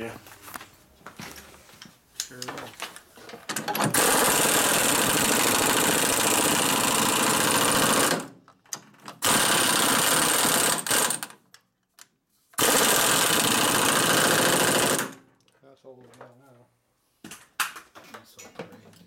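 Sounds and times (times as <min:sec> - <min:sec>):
impact wrench hammering rattle: 0:03.4 - 0:11.5, 0:12.6 - 0:15.3.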